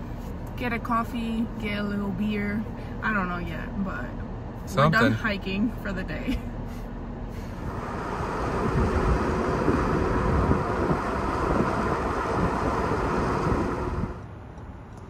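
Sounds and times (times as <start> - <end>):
wind buffeting microphone: 7.6 - 14.4.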